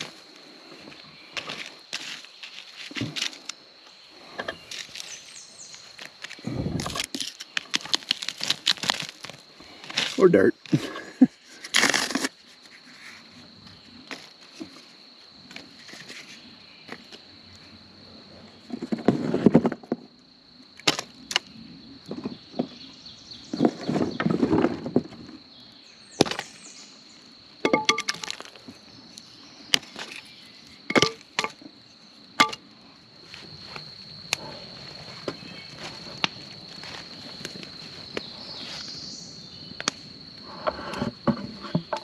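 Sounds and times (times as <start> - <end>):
wood knocking and clattering: 27.6 - 28.5, 30.9 - 31.6, 40.6 - 42.0.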